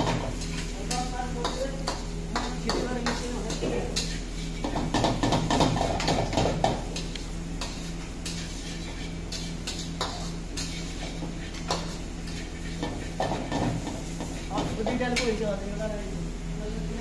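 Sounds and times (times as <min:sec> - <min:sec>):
metal spatula scraping a wok: 0:00.2 - 0:06.4, 0:07.0 - 0:15.4.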